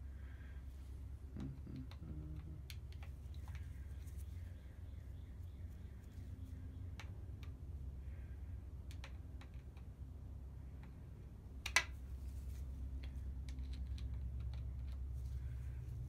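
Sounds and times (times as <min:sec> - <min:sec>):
low steady hum: 0:00.0 - 0:16.0
small metallic clicks and taps: 0:08.8 - 0:09.9, 0:12.9 - 0:15.2.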